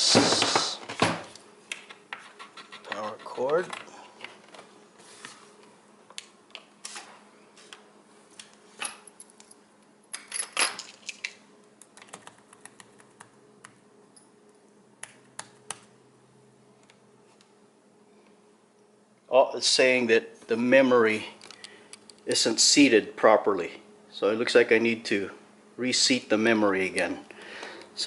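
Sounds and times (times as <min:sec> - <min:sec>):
faint steady hum: 0:00.0 - 0:28.0
laptop keys clicking: 0:11.8 - 0:13.8.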